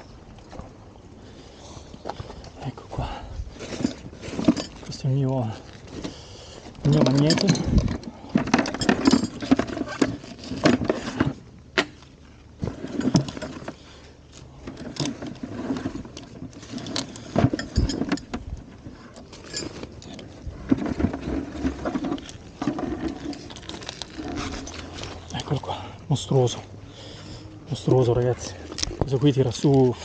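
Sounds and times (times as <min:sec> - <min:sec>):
rope rustling in a plastic bucket: 0:12.2 - 0:30.0.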